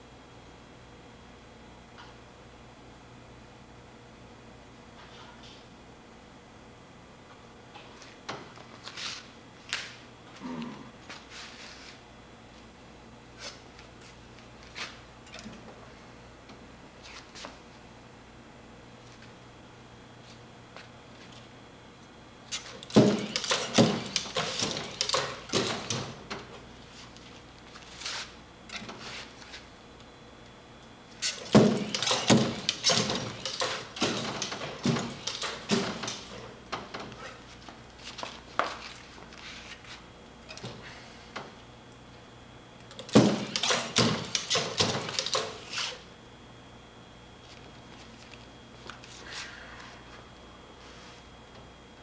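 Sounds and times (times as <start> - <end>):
wooden knocks and clatter: 22.8 - 26.5, 31.4 - 37.1.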